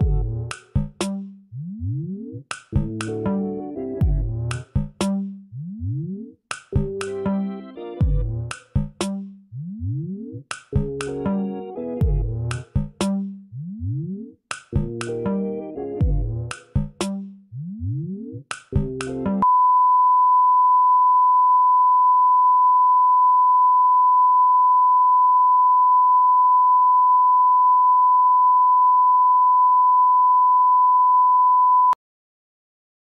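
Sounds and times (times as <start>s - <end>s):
steady broadcast test tone: 19.4s - 32.0s.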